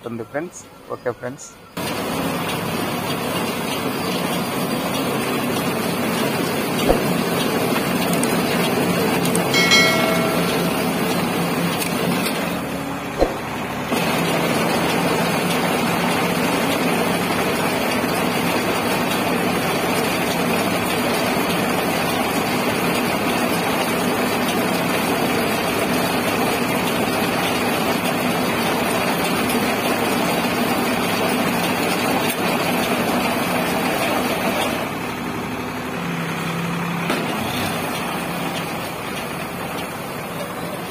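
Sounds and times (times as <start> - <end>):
straw baler working: 1.8 - 40.9
tractor engine running: 1.8 - 40.9
sharp knock: 9.6 - 11.0, 13.2 - 13.5.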